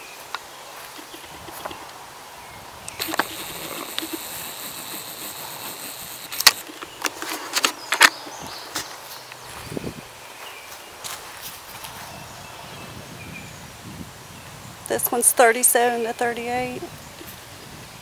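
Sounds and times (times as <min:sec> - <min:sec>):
high steady buzz: 0:02.9 - 0:06.8
footsteps crunching dry leaves: 0:06.4 - 0:12.1.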